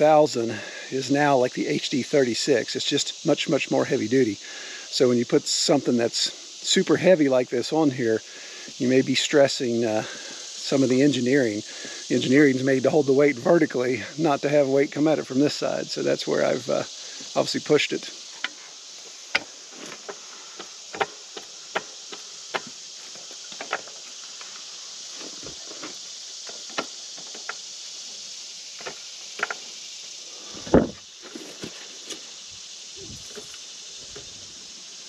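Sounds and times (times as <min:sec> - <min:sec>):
high insect chorus: 0:00.0 - 0:35.0
sharp clicks and knocks: 0:19.3 - 0:22.8, 0:23.5 - 0:24.5, 0:25.3 - 0:27.6, 0:28.8 - 0:29.7
loud thump: 0:30.6 - 0:31.0.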